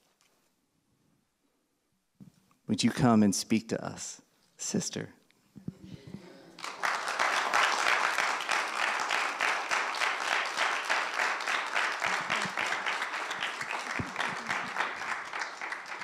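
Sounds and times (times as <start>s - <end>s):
congregation applauding: 6.4s - 16.0s.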